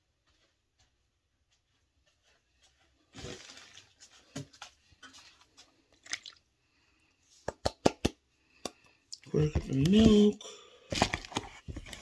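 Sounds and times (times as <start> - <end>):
milk pouring into metal bowl: 5.9 - 6.5
kitchen things rustling and knocking: 10.9 - 12.0.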